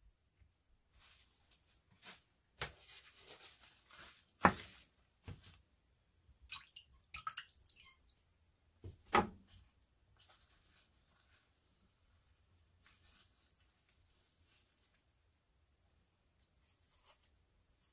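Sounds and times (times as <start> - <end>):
water dripping and splashing: 6.5 - 8.4.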